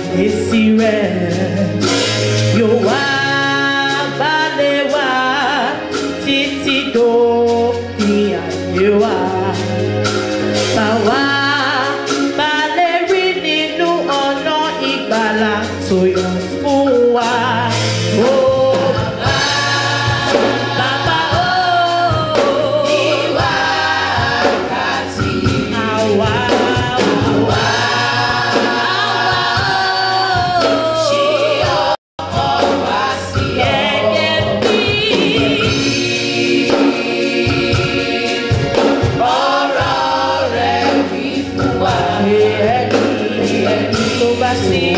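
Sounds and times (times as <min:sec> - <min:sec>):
instrumental backing: 0:00.0 - 0:44.9
choir singing: 0:17.7 - 0:44.9.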